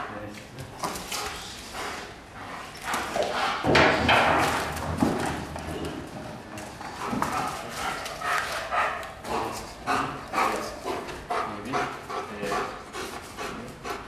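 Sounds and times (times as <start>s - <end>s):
dog paws scuffling on concrete: 4.4s - 13.5s.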